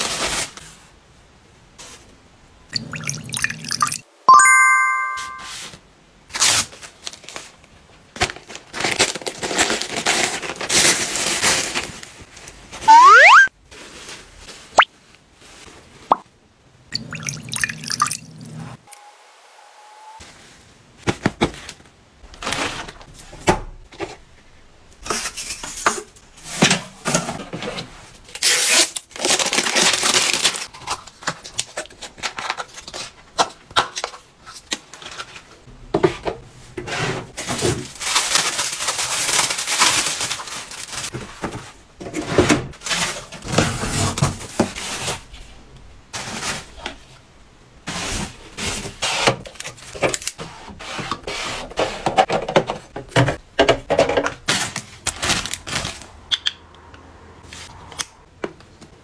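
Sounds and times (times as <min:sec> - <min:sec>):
bubble wrap rustling in a box: 0:00.0 - 0:00.9, 0:06.3 - 0:12.8, 0:13.6 - 0:16.0, 0:28.3 - 0:33.2, 0:37.4 - 0:41.8
plastic crinkling and rustling: 0:06.4 - 0:12.8, 0:13.6 - 0:16.1, 0:25.0 - 0:35.7, 0:37.4 - 0:45.5, 0:53.6 - 0:56.2.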